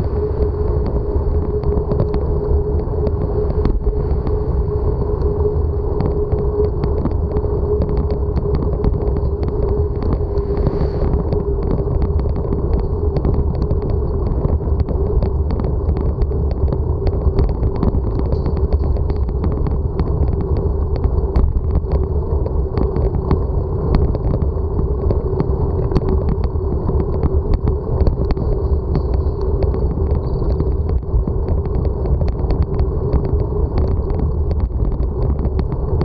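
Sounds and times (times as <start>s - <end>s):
bicycle tyres rolling on asphalt: 0.0s - 36.0s
low whine: 0.0s - 36.0s.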